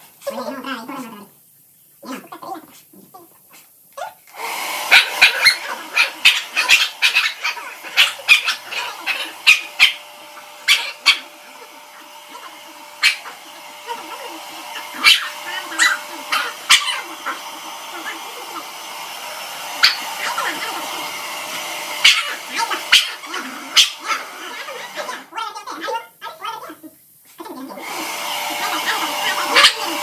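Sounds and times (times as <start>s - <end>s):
background hiss: 0.0s - 4.4s, 25.1s - 27.8s
small dog yapping: 3.5s - 18.8s, 19.7s - 26.8s, 27.6s - 30.0s.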